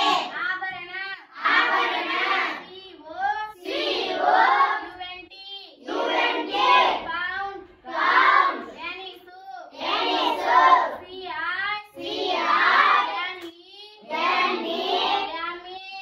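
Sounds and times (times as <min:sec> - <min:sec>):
children chanting in unison: 0:00.0 - 0:05.0, 0:05.8 - 0:16.0
child speaking: 0:02.7 - 0:03.6, 0:07.1 - 0:07.7, 0:08.7 - 0:09.7, 0:13.2 - 0:14.0, 0:15.2 - 0:16.0.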